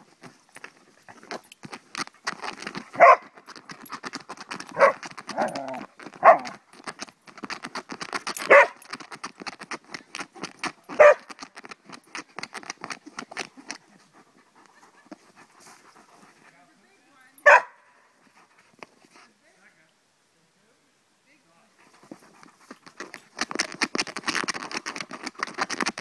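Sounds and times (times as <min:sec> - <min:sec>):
teeth and claws on plastic frisbee: 0:00.0 - 0:16.6, 0:18.2 - 0:19.3, 0:21.8 - 0:26.0
dog barking: 0:03.0 - 0:03.2, 0:04.8 - 0:05.5, 0:06.2 - 0:06.5, 0:08.5 - 0:08.8, 0:11.0 - 0:11.3, 0:17.4 - 0:17.9.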